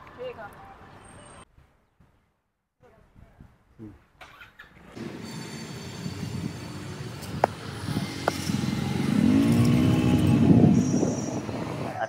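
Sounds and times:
vehicle engine running: 0:05.0 - 0:10.6.

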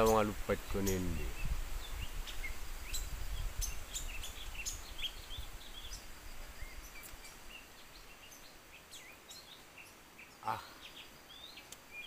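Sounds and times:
songbirds chirping: 0:00.0 - 0:12.0.

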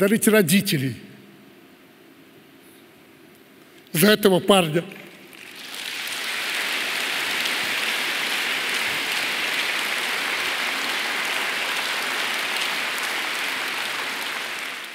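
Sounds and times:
audience applauding: 0:04.9 - 0:14.9.

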